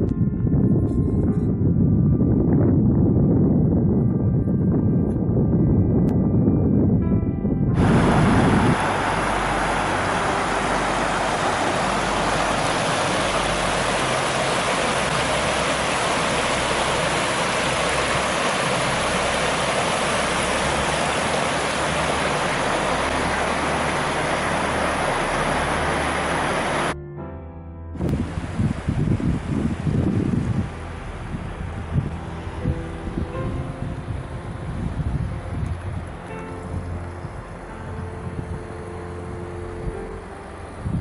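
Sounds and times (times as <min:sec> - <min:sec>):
stream water tumbling over stones: 0:07.8 - 0:27.0.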